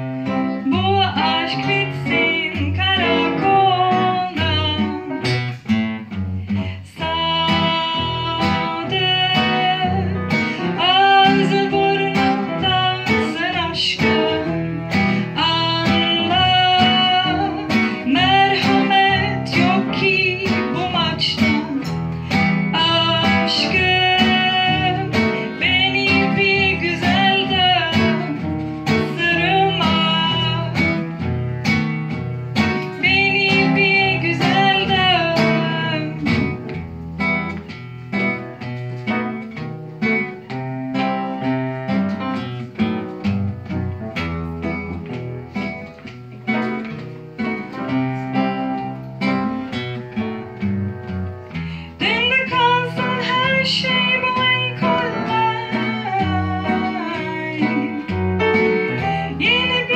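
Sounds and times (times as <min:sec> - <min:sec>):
plucked acoustic guitar: 0:00.0 - 0:59.9
woman singing into a microphone: 0:00.3 - 0:05.6, 0:06.5 - 0:31.2, 0:32.7 - 0:36.8, 0:51.7 - 0:59.9.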